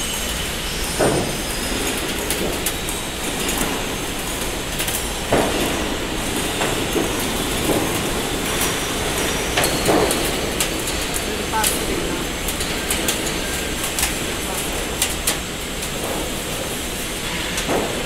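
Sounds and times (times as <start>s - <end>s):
roll forming machine running: 0.0s - 18.0s.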